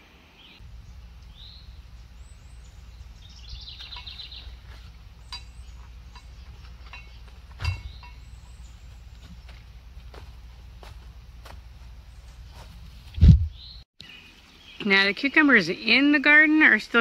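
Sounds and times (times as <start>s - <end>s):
bird chirping: 0.0s - 10.4s, 12.0s - 16.1s
low outdoor rumble: 0.6s - 13.8s
wooden gate knocking shut: 7.5s - 8.1s.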